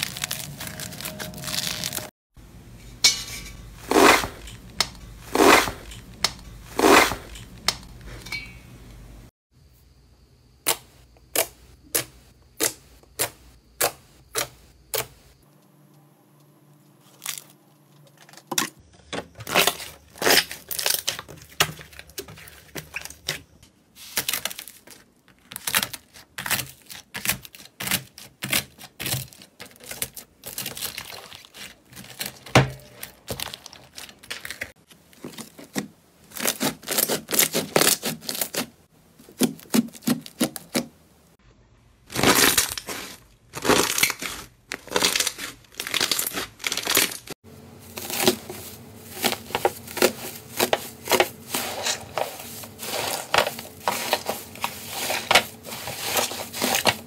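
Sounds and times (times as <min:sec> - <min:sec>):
slime crackling and squelching: 0:00.0 - 0:02.1, 0:19.4 - 0:38.7, 0:42.1 - 0:57.0.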